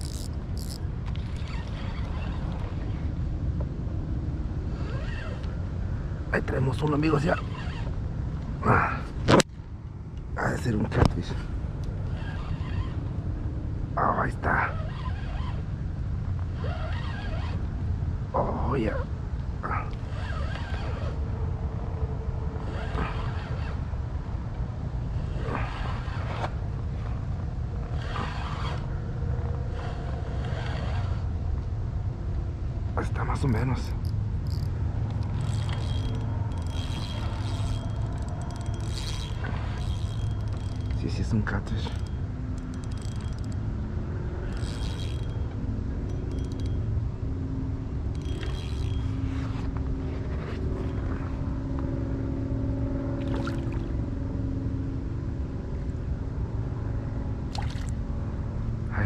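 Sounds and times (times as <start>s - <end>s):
fishing reel whirring: 0.0s - 3.0s, 6.9s - 8.0s, 11.9s - 13.1s, 14.7s - 15.7s, 16.6s - 17.7s, 19.9s - 21.2s, 22.6s - 23.8s, 25.2s - 26.5s, 27.8s - 31.3s, 33.4s - 46.9s, 48.1s - 49.7s
steady low rumble: 0.0s - 4.8s, 17.6s - 59.0s.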